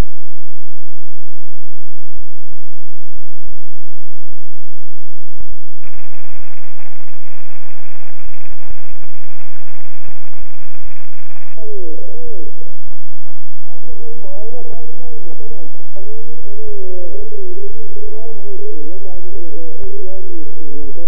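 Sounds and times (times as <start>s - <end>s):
radio static crackling: 0.0s - 21.0s
warbling pitched tone: 5.8s - 18.8s.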